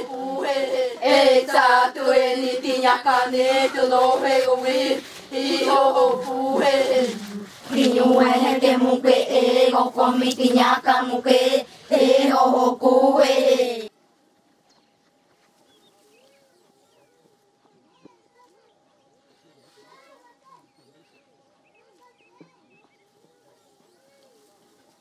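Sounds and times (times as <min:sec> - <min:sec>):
women chanting in unison: 0:00.0 - 0:13.9.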